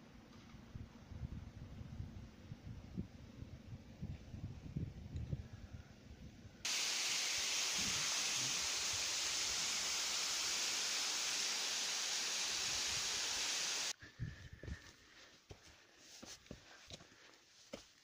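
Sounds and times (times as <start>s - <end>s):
waterfall rushing into a pool: 6.7s - 13.9s.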